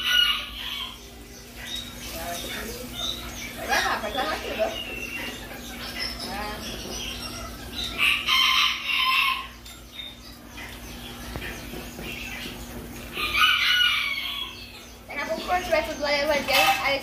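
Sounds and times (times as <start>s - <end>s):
rooster crowing: 7.9s - 9.6s, 13.2s - 14.7s.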